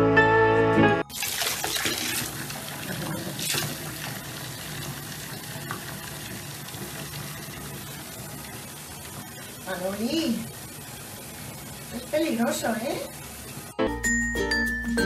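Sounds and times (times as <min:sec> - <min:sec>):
water splashing into a tub: 0:01.1 - 0:08.2
water running from a tap: 0:01.1 - 0:13.8.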